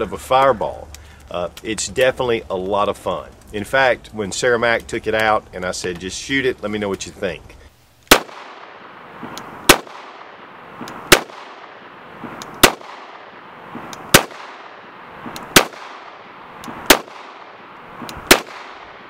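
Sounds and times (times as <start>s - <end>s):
pistol shots: 8.1s - 19.0s.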